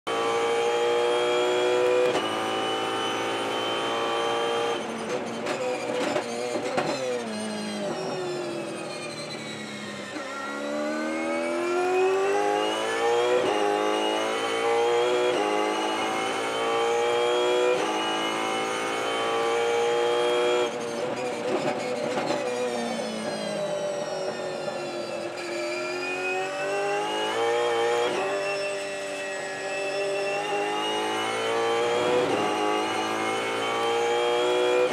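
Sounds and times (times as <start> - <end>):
racing car engine revving: 10.5 - 20.9, 29.5 - 34.9.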